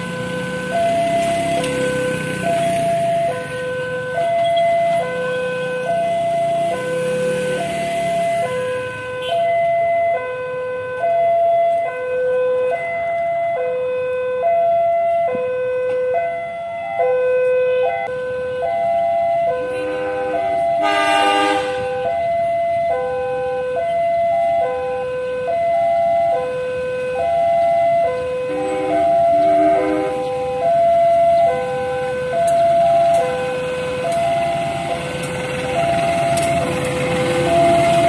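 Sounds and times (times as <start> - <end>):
two-tone crossing alarm: 0.0 - 38.0
train horn blast: 19.7 - 22.0, 28.4 - 30.4.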